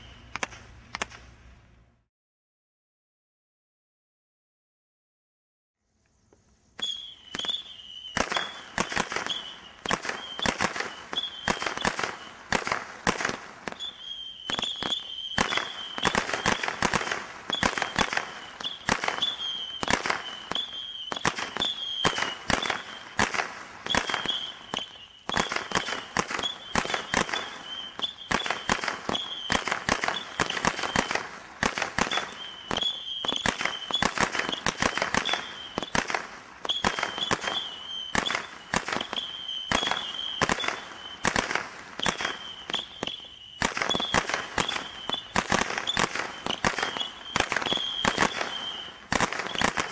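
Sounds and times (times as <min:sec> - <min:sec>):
roman candle shots firing: 0:06.8 - 0:49.9.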